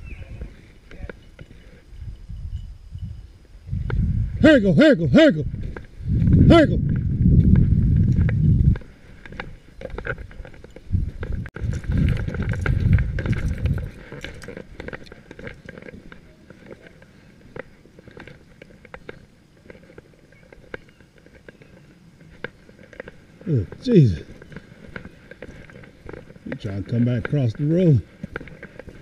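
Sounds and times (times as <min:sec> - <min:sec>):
wind buffeting microphone: 0:00.0 - 0:16.1
footsteps on wet gravel: 0:07.0 - 0:29.0.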